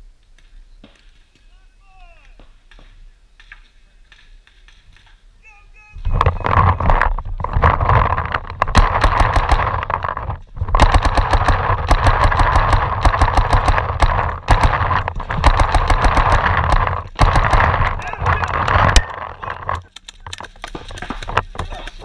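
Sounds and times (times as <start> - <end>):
steady rushing noise: 6.0 - 20.1
paintball markers firing: 6.2 - 22.0.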